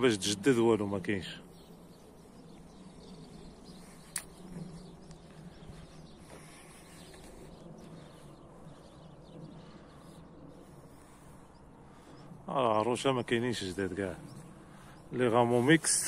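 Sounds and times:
faint outdoor background noise: 0.0s - 16.0s
sharp click: 4.1s - 4.4s.

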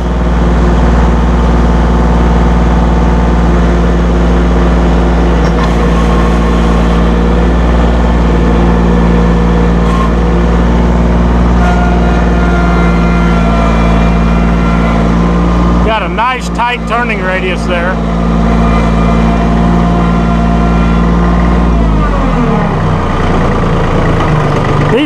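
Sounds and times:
loader hydraulics working: 0.0s - 25.0s
tractor engine at high revs: 0.0s - 25.0s.

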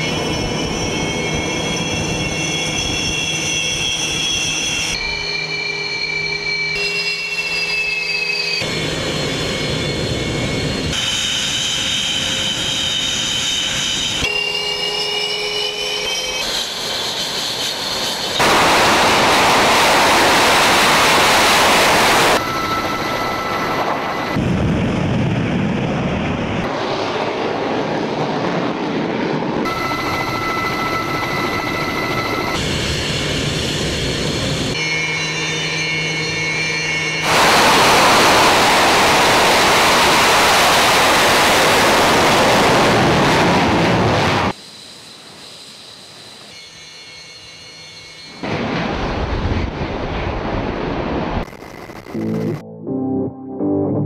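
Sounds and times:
jet engines whining: 0.0s - 52.6s
loud jet rush: 16.0s - 34.8s, 37.1s - 44.6s.

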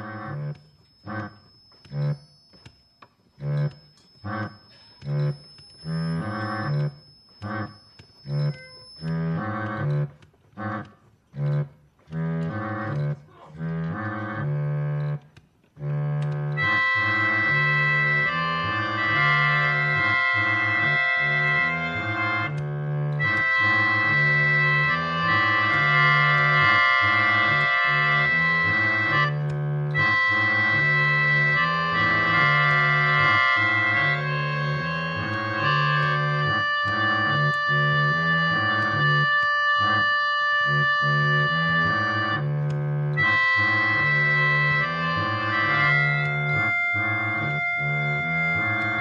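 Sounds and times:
organ music: 0.0s - 49.0s.

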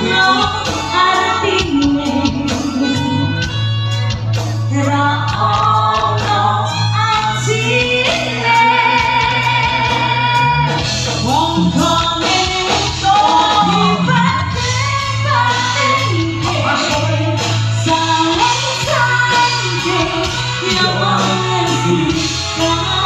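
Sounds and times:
woman singing into microphone: 0.0s - 4.0s, 4.6s - 23.0s
gamelan and drum ensemble: 0.0s - 23.0s.

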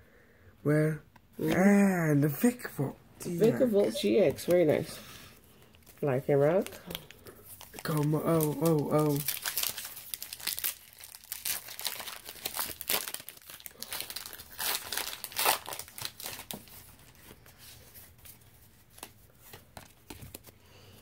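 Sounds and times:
foil wrapper tearing and crinkling: 5.8s - 17.2s.

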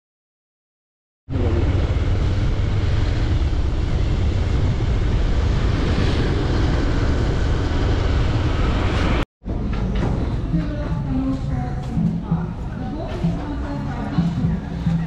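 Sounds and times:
road noise from moving vehicle: 1.3s - 9.3s.

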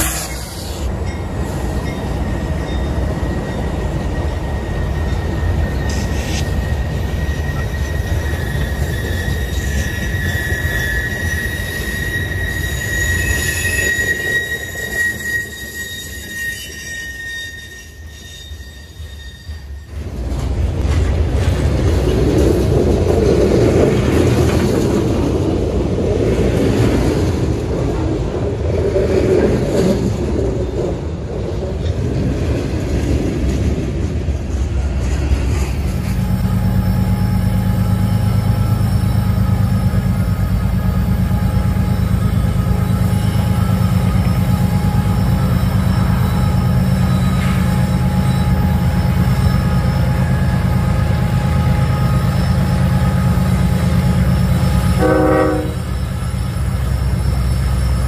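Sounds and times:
train wheel squeal: 0.0s - 20.3s, 35.0s - 58.0s
diesel locomotives droning: 17.8s - 58.0s.

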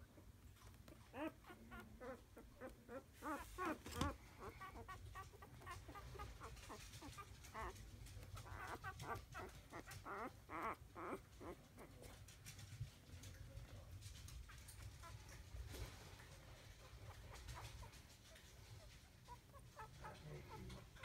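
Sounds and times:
puppies squeaking: 0.1s - 12.2s, 16.7s - 21.0s.

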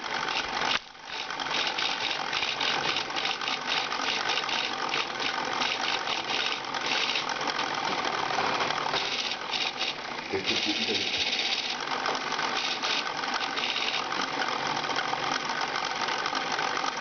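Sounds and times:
plastic gear train rattling: 0.2s - 17.0s.

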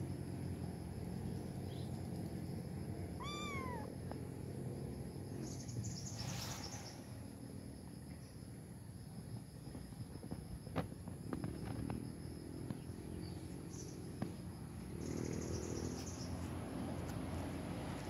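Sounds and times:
kitten meowing: 3.2s - 4.0s.

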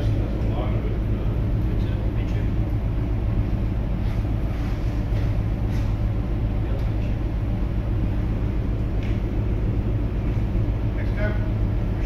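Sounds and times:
ship low rumble: 0.0s - 12.0s.

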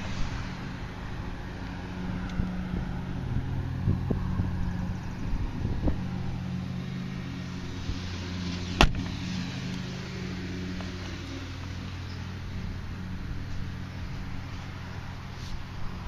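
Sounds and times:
car door shutting: 8.7s - 9.2s.

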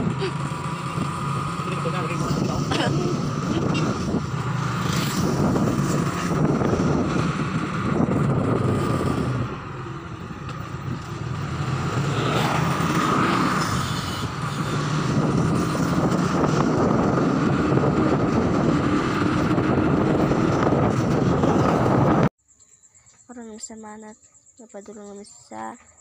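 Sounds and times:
motorcycle engine running: 0.0s - 22.3s
wind rushing over microphone: 0.0s - 22.3s.

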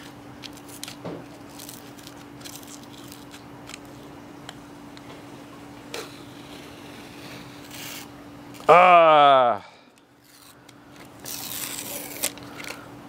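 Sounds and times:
plastic film crackling and rustling: 0.0s - 4.1s, 10.2s - 12.8s
faint steady hum: 0.0s - 13.0s.

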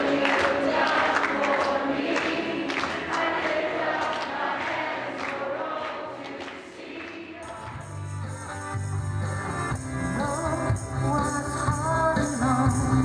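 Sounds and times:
congregation singing: 0.0s - 8.6s.

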